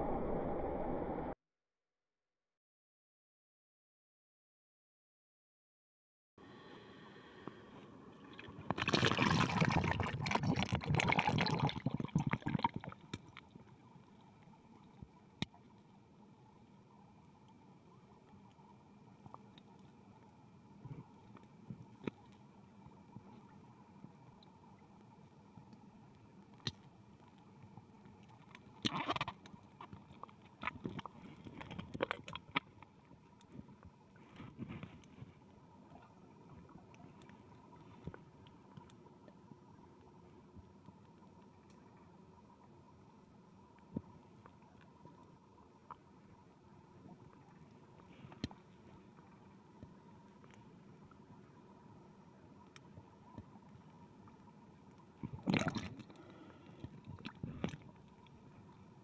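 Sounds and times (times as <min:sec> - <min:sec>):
water bubbling underwater: 0:08.2 - 0:13.7, 0:55.2 - 0:58.2
short underwater rush: 0:08.5 - 0:12.7.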